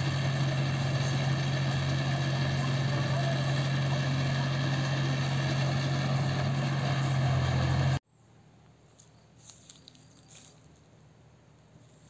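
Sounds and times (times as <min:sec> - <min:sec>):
diesel tractor engine running: 0:00.0 - 0:08.0.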